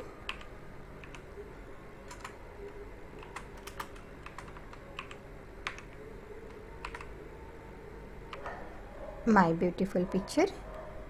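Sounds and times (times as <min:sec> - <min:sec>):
keyboard typing: 0:00.0 - 0:01.3, 0:02.0 - 0:07.2
faint low hum: 0:00.0 - 0:11.0.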